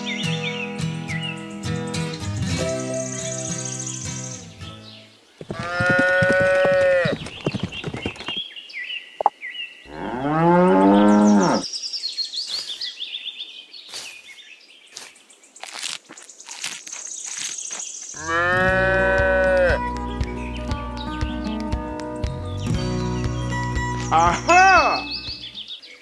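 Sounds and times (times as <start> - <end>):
cattle mooing: 5.5 - 7.2, 9.9 - 11.6, 18.2 - 19.8.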